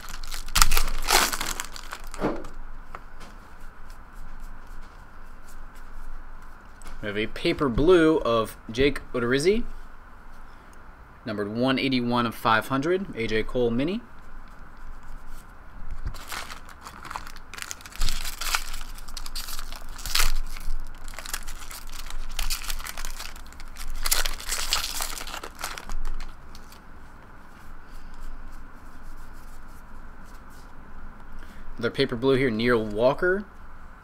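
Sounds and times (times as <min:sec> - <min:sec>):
cards rustling as handled: 0:00.0 - 0:02.2, 0:15.0 - 0:26.8
foil wrapper crinkling and tearing: 0:00.0 - 0:02.2, 0:16.1 - 0:26.8.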